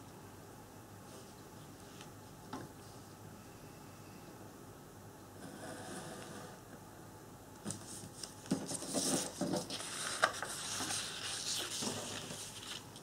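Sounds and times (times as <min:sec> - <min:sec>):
card rustling and sliding: 0:07.7 - 0:12.9.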